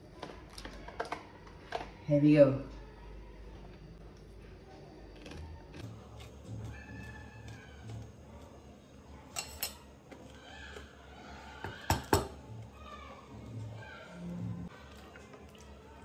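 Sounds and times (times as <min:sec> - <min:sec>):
metal spoon clinking against bowl: 0:09.3 - 0:09.9.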